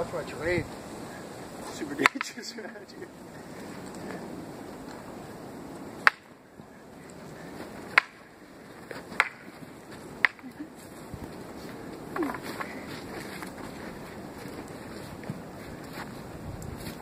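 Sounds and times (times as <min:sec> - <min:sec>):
wooden swords clacking: 0:02.0 - 0:02.4, 0:06.0 - 0:06.4, 0:07.9 - 0:08.2, 0:08.8 - 0:09.6, 0:10.2 - 0:10.6, 0:12.1 - 0:13.4.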